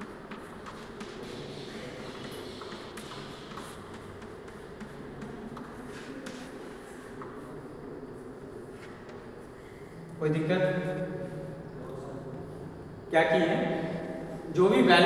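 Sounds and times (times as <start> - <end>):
chalk scraping: 0.0 - 7.0
chalk tapping on chalkboard: 0.0 - 7.5.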